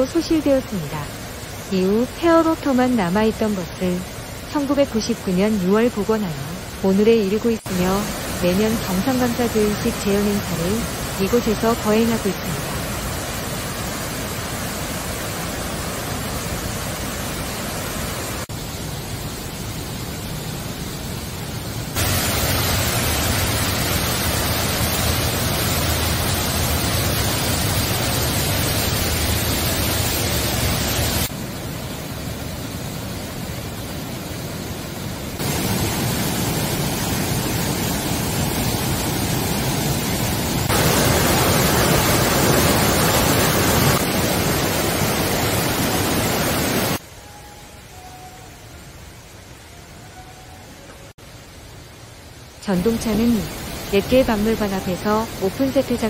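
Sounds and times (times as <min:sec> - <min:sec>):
stream rushing over rocks: 0:22.0 - 0:34.2, 0:34.8 - 0:56.0.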